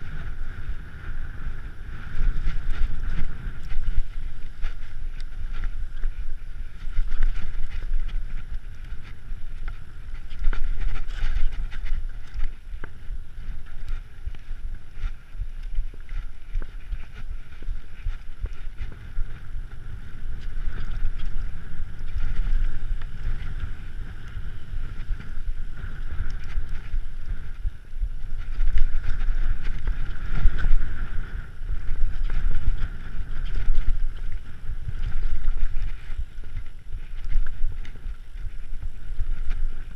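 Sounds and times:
bike tyres and frame rattling: 0.0s - 39.9s
wind buffeting microphone: 0.0s - 39.9s.

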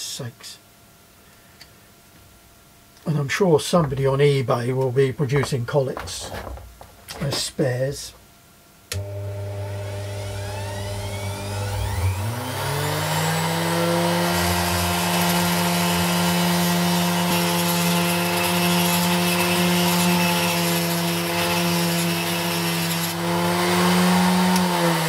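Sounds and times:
burr grinding into stone: 5.3s - 7.6s
grinder motor hum: 8.9s - 25.0s.

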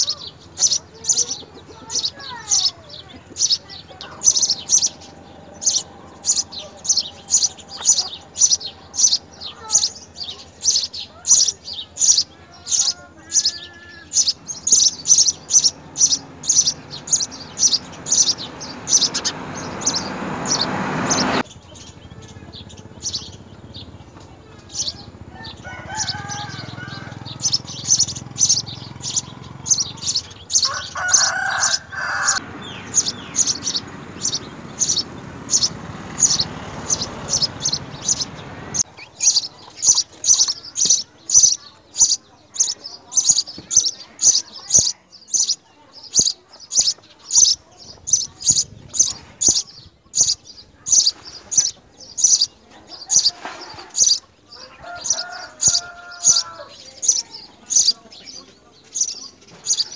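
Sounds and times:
sparrows chirping: 0.0s - 59.9s
rush of noise: 14.8s - 21.4s.

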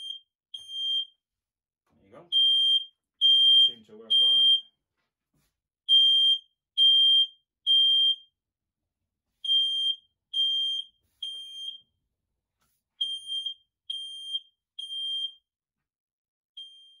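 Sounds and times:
smoke detector beeping: 0.0s - 1.1s, 2.3s - 4.7s, 5.9s - 8.3s, 9.4s - 11.9s, 13.0s - 15.4s, 16.6s - 17.0s.

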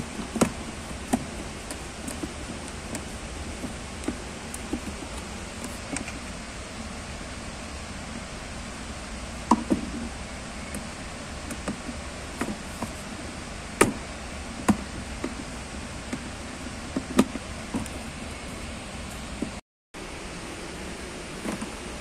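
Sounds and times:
steady hiss: 0.0s - 22.0s
hard plastic clicks and knocks: 0.2s - 6.2s, 16.9s - 18.0s.

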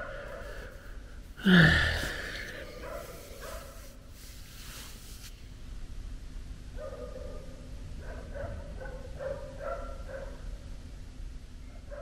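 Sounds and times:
animal barking: 2.0s - 3.9s.

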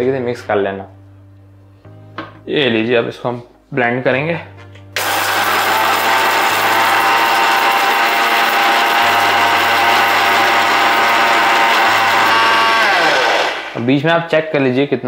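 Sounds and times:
mixer grinder motor whine: 5.0s - 13.9s.

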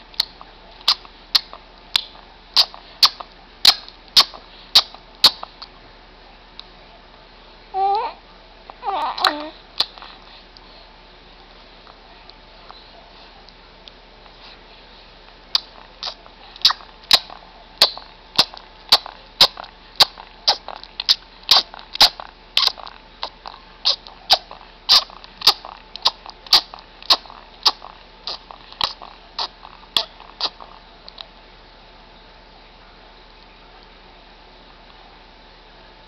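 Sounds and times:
baby sucking and chewing fists: 0.1s - 5.7s, 9.1s - 10.3s, 15.5s - 31.3s.

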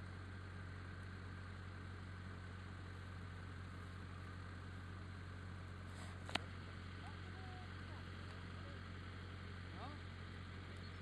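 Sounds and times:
faint constant whine: 0.0s - 11.0s
vehicle engine idling: 0.0s - 11.0s.

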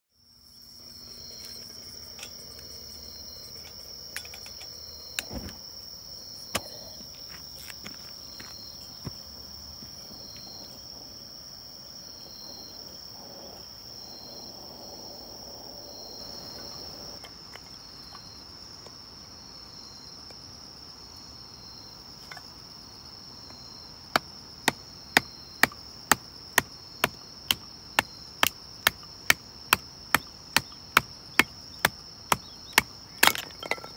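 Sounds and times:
night insects trilling: 0.2s - 33.9s
firewood being split: 24.2s - 33.9s.

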